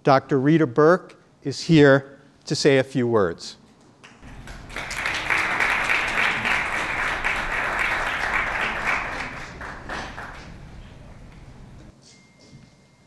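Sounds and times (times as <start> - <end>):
audience applause: 4.2 - 11.8.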